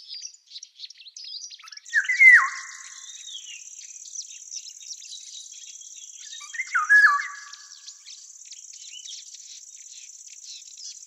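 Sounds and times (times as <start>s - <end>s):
small bird chirps: 0.0s - 11.0s
loud whistled bird phrase: 1.9s - 2.9s, 6.5s - 7.6s.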